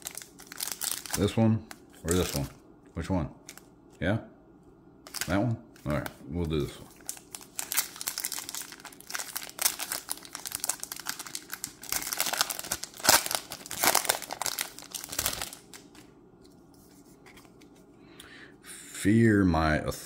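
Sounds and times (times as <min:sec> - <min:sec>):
foil wrapper crinkling and tearing: 0:00.0 - 0:02.5, 0:05.1 - 0:06.0, 0:06.8 - 0:16.0.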